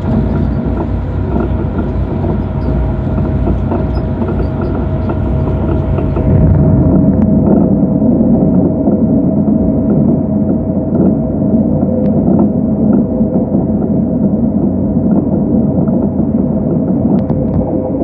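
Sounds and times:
constant whine: 0.0s - 18.0s
train running rumble: 0.0s - 18.0s.

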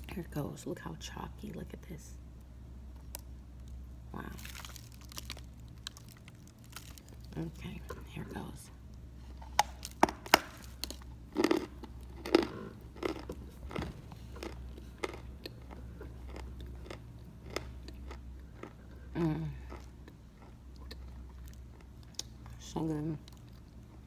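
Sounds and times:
chalk crunching while chewed: 4.4s - 7.5s, 9.4s - 22.5s.

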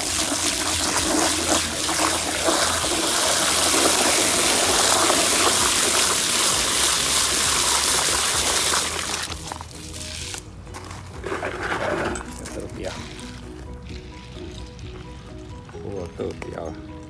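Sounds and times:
hose spraying water into bucket: 0.0s - 10.4s, 11.2s - 17.0s.

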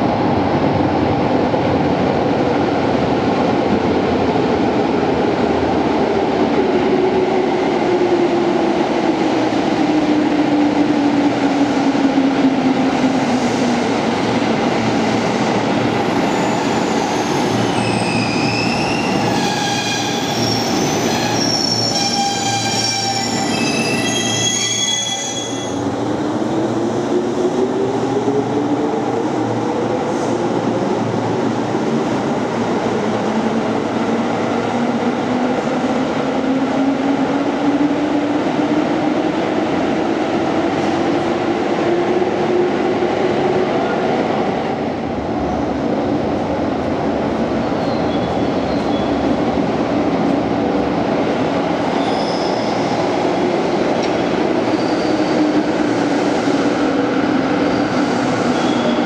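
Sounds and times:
wheel and brake squeals: 52.0s - 52.8s, 54.7s - 55.4s.

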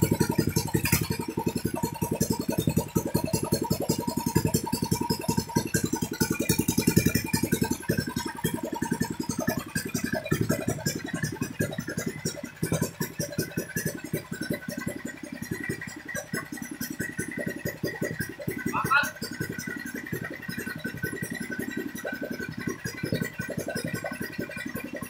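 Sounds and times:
single-cylinder engine running: 0.0s - 25.0s.

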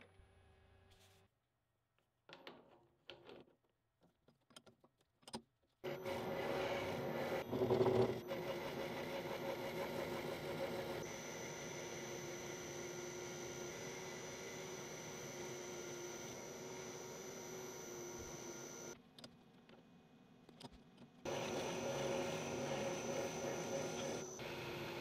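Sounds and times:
lathe motor hum: 5.9s - 19.0s, 21.3s - 25.0s.

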